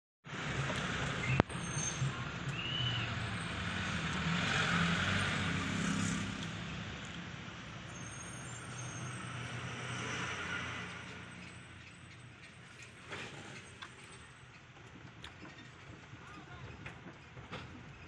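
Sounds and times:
rush of tyres and wind: 0.3 - 12.4
truck engine hum: 0.3 - 17.2.

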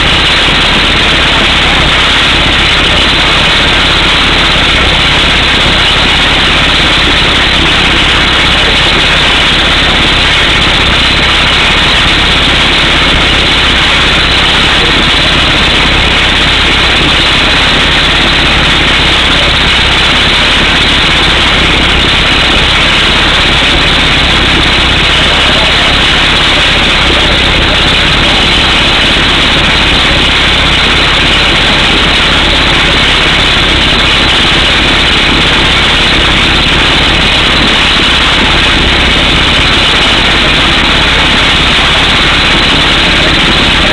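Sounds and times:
air hammer drilling rock: 0.0 - 43.9
truck engine running: 0.0 - 43.9.

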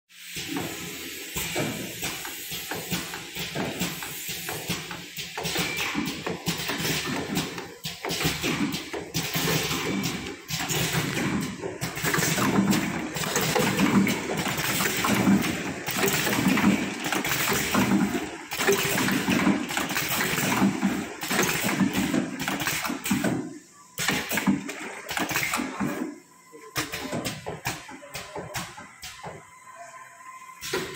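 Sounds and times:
bottle filling machine running: 0.2 - 30.9
machine clicks and knocks: 1.4 - 23.4.

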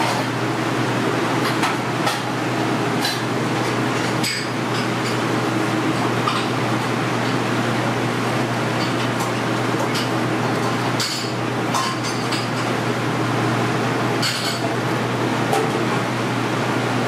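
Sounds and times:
kitchen hum: 0.0 - 17.0
utensils and dishes clinking: 3.0 - 5.3, 5.9 - 6.6, 8.8 - 12.8, 14.2 - 14.8.

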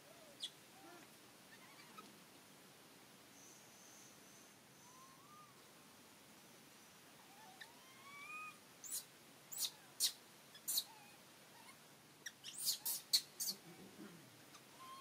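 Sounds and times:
infant monkey squeaking: 1.5 - 2.1, 7.3 - 13.6, 14.5 - 15.0.

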